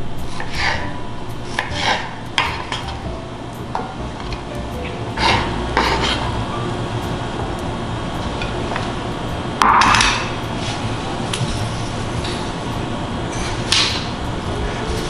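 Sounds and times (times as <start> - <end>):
steady low hum: 0.0 - 15.0
knife scraping cutting board: 0.3 - 0.9, 1.5 - 2.9, 5.2 - 6.4.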